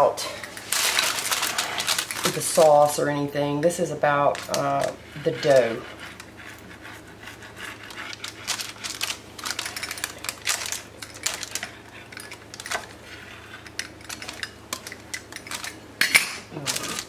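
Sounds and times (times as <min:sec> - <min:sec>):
pizza cutter rolling through crust: 0:04.3 - 0:14.4.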